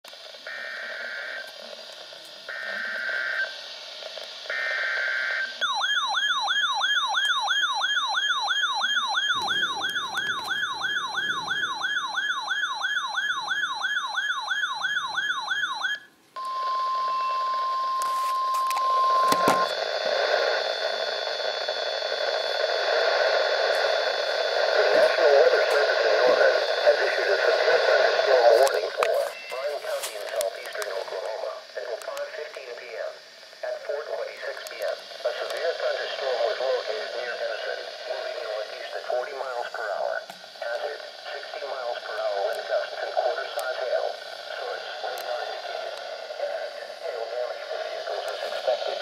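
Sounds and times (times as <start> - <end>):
radio hiss: 0.1 - 5.7, 9.2 - 13.1, 18.0 - 49.0
fast warbling alarm: 4.5 - 22.5
steady attention tone: 4.5 - 49.0
buzzing data tones: 7.6 - 13.8.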